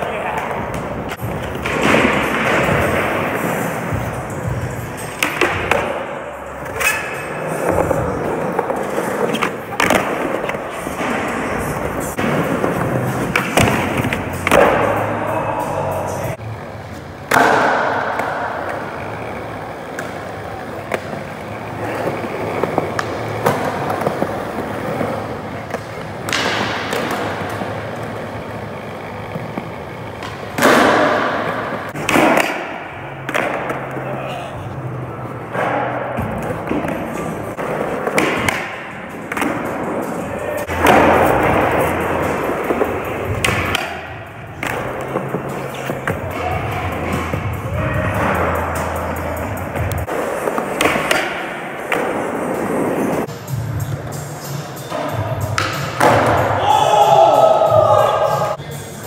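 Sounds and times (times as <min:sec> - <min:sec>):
skateboard wheels rolling on concrete: 0:00.0 - 0:58.6
skateboard clacking on floor: 0:49.8 - 0:52.3.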